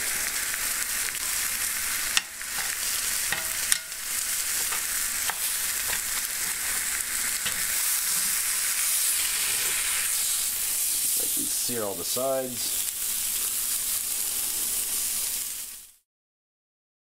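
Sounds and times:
meat sizzling in a pan: 0:00.0 - 0:16.0
metal tongs clicking on pan: 0:02.1 - 0:06.6, 0:07.4 - 0:08.4.

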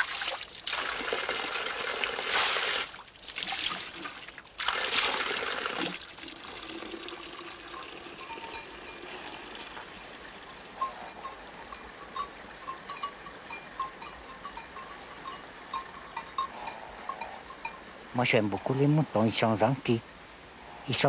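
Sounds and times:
water pouring into a bucket: 0:00.0 - 0:10.4
water trickling: 0:00.0 - 0:20.2.

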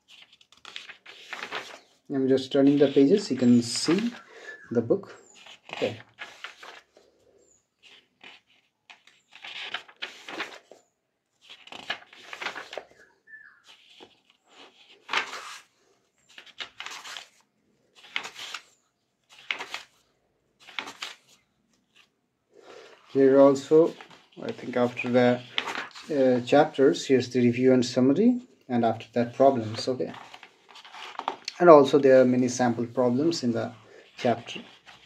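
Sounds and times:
book pages turning: 0:00.0 - 0:04.3, 0:05.3 - 0:06.9, 0:07.8 - 0:10.8, 0:11.4 - 0:17.4, 0:18.0 - 0:20.0, 0:20.6 - 0:22.1, 0:22.9 - 0:26.5, 0:29.3 - 0:31.6, 0:33.1 - 0:35.0.

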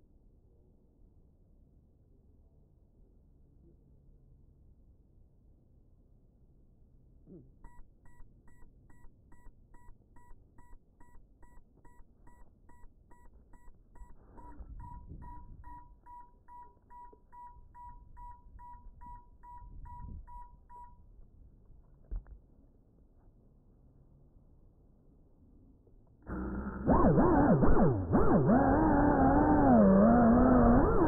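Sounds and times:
drone short even beeps: 0:07.3 - 0:21.0.

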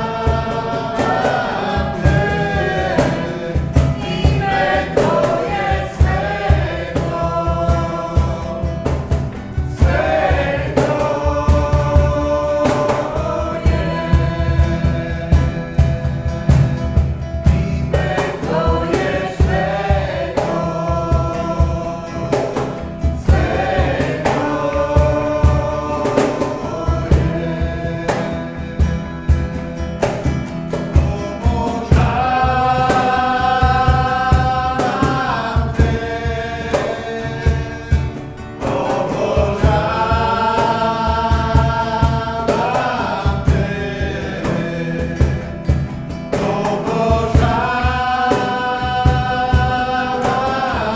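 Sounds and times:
man and woman singing: 0:00.0 - 0:50.9
steady beat: 0:00.0 - 0:50.9
strummed acoustic guitar: 0:00.0 - 0:50.9.

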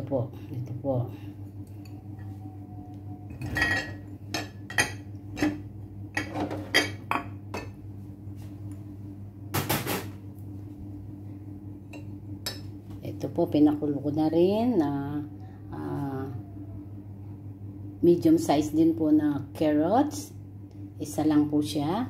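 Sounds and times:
glass bowls clattering: 0:03.3 - 0:05.6
glass bowls clinking: 0:03.3 - 0:05.6, 0:06.2 - 0:07.8.

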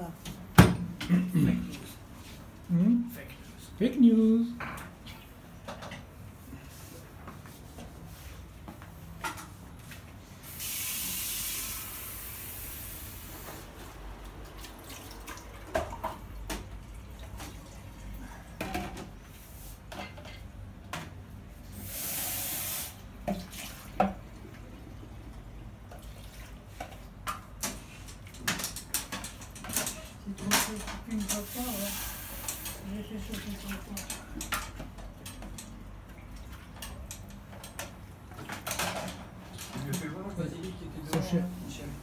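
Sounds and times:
kitchen tap running water: 0:10.5 - 0:13.4, 0:21.8 - 0:24.2, 0:31.2 - 0:34.1.

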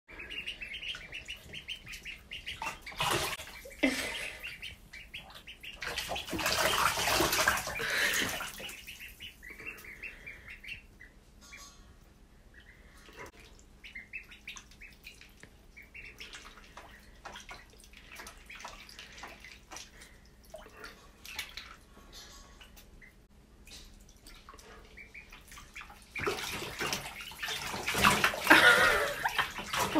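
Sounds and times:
ducklings peeping: 0:00.1 - 0:21.9, 0:22.6 - 0:29.9
water splashing: 0:00.2 - 0:09.4, 0:16.0 - 0:21.8, 0:23.6 - 0:29.9.

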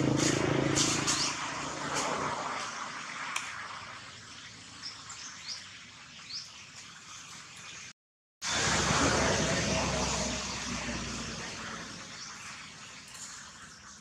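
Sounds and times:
vehicle engine hum passing: 0:00.0 - 0:04.8, 0:08.4 - 0:12.8.

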